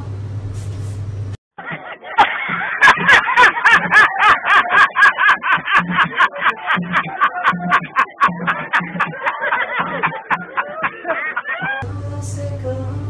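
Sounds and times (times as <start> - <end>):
man laughing wildly: 1.6 - 11.8.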